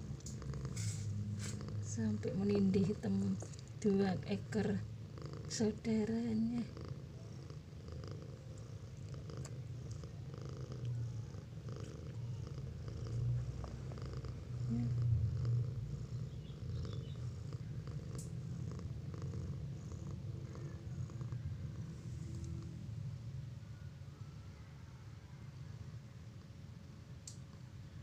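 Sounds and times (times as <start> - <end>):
cat purring: 0.0 - 23.4, 25.6 - 28.0.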